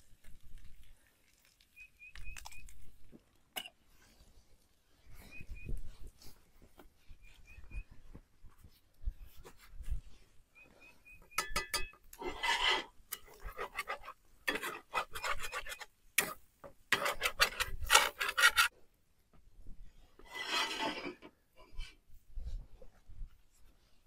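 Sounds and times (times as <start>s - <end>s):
metal spatula scraping skillet: 11.3s - 18.7s, 20.2s - 21.3s.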